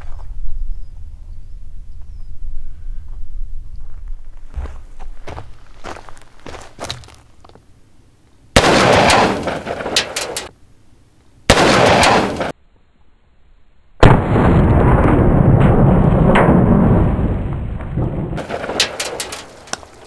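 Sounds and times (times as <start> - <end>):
faint footsteps on gravel: 2.9 - 7.8, 19.1 - 20.0
revolver gunshots: 8.6 - 10.5, 11.5 - 12.5, 18.4 - 19.5.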